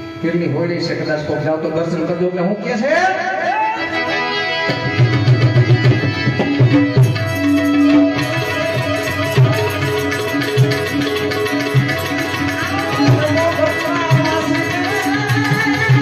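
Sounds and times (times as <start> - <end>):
harmonium: 0.0 - 16.0
tabla beat: 3.4 - 16.0
gliding melody line: 3.8 - 16.0.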